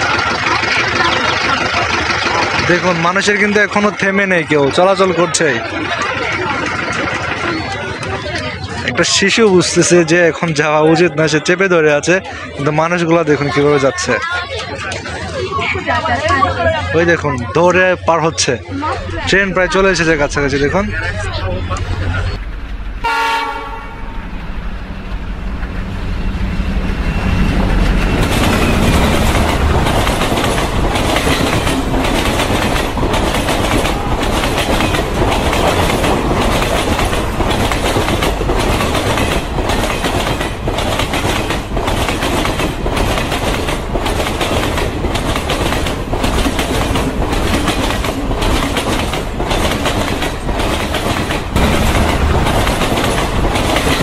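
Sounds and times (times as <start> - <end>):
wheels clacking over rail joints: 0.0 - 10.6, 27.0 - 54.0
freight train rumbling past: 0.0 - 54.0
train horn: 23.0 - 24.2.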